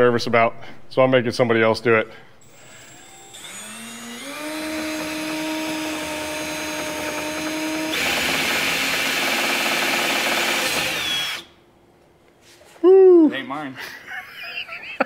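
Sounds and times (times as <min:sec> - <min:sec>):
cordless drill drilling: 0:02.4 - 0:11.5.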